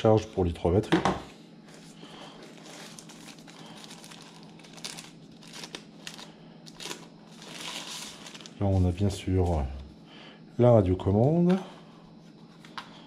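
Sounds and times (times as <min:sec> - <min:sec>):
plastic wrapping crinkling: 0:01.7 - 0:09.7.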